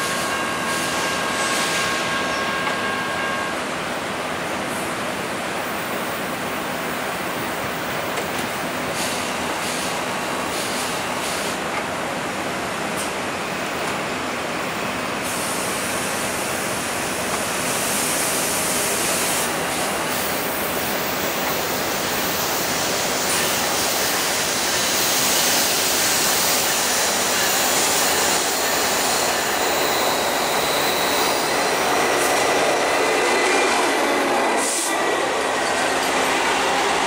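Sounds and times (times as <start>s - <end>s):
freight train approaching: 0.0s - 37.0s.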